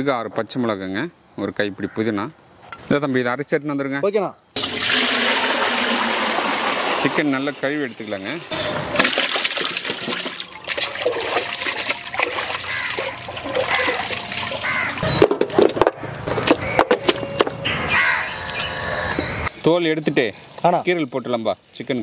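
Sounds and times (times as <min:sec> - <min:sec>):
water splashing in metal pot: 0:04.6 - 0:15.1.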